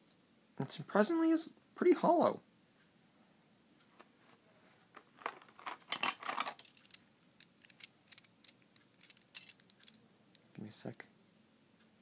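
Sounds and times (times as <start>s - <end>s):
light metallic clinks: 7.6s - 10.0s.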